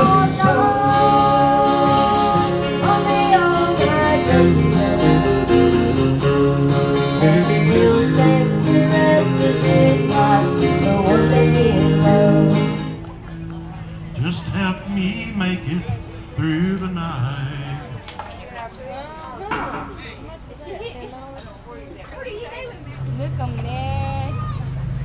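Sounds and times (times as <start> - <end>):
people singing into microphones: 0.0 - 13.0
two guitars playing: 0.0 - 18.5.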